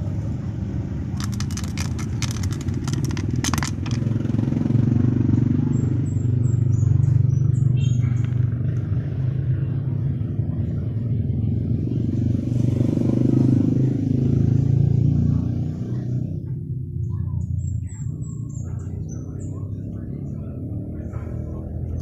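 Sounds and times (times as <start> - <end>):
engine low rumble: 0.0 - 22.0.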